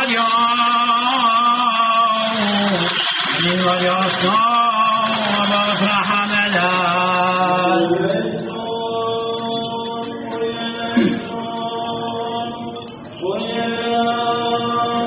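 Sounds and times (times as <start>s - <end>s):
man chanting: 0.0s - 15.0s.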